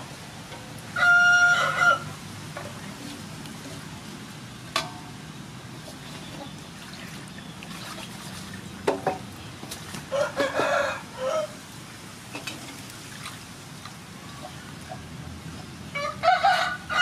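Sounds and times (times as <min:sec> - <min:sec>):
rooster crowing: 0:01.0 - 0:02.2, 0:10.1 - 0:11.6, 0:15.9 - 0:17.0.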